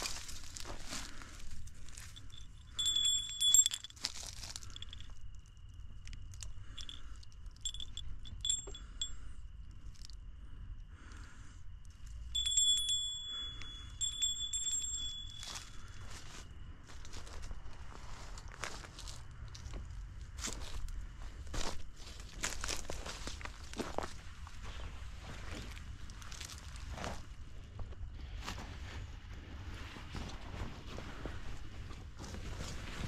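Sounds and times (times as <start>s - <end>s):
soft rustling: 0.0s - 5.5s
small metal objects clinking: 1.9s - 5.2s, 6.3s - 9.2s, 12.2s - 16.2s.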